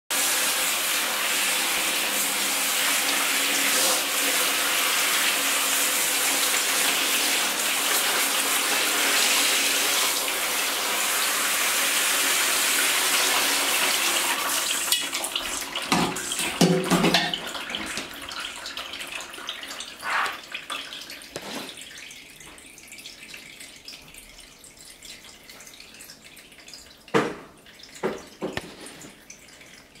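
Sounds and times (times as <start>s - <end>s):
shower spraying water: 0.1s - 20.6s, 21.3s - 21.9s
water dripping and draining: 0.1s - 30.0s.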